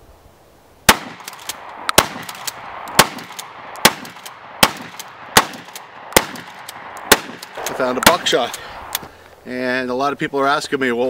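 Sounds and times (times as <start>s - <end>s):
shotgun shots: 0.9s - 8.9s.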